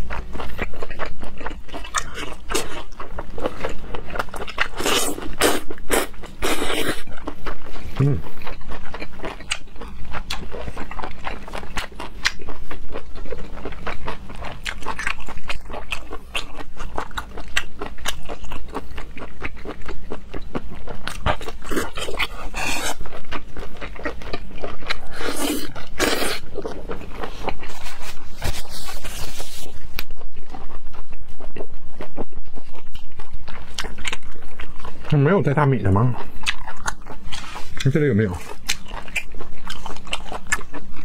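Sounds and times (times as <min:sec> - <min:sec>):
wet chewing and mouth clicks: 0:00.0 - 0:41.0.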